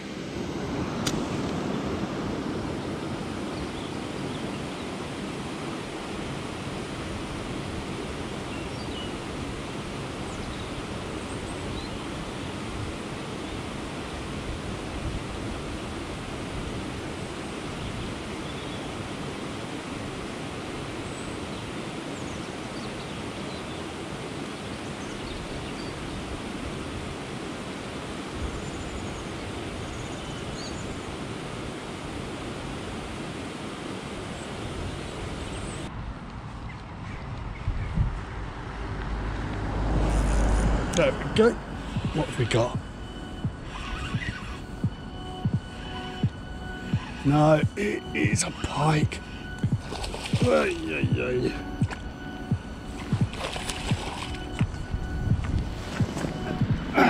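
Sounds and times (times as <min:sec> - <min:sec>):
outdoor rushing noise: 0:35.8 - 0:57.0.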